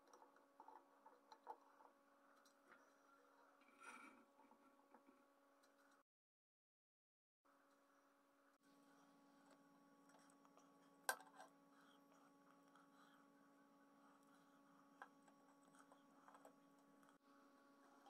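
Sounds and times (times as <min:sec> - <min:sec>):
faint electrical hum: 0:00.0 - 0:06.0, 0:07.5 - 0:18.0.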